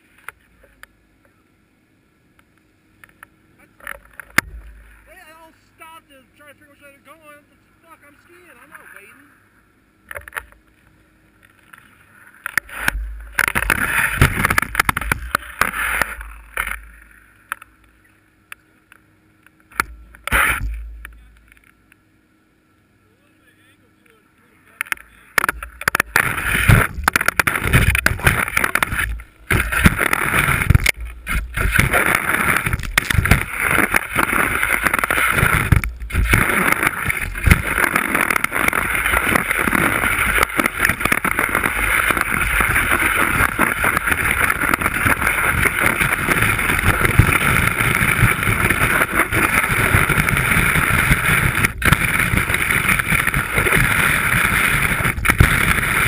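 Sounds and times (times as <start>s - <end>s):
skis hissing over snow: 26.2s - 56.0s.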